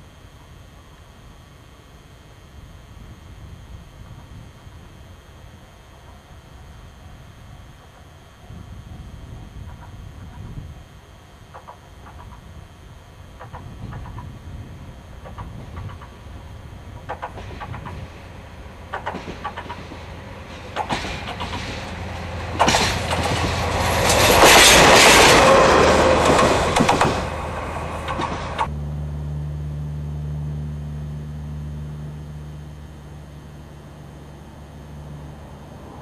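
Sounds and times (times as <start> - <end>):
locomotive engine hum: 0.0 - 36.0
locomotive wheels clicking over rail joints: 11.5 - 12.4, 13.4 - 14.4, 15.1 - 28.7.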